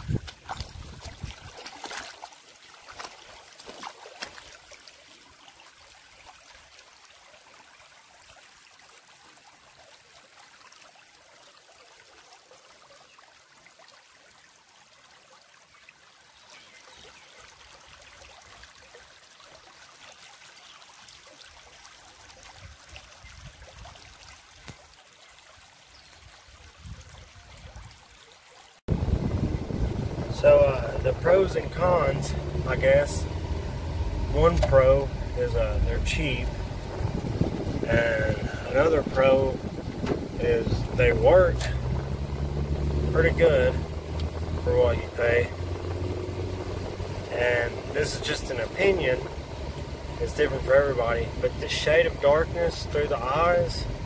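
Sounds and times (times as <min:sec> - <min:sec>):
river water trickling over rocks: 0:00.0 - 0:54.0
low rumbles: 0:28.9 - 0:54.0.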